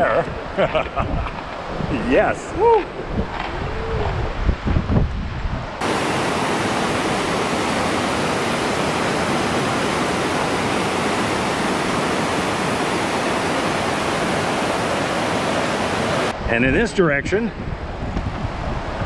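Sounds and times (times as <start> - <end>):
low wind rumble on microphone: 0.0 - 19.0
whitewater rapids rushing: 5.8 - 16.4.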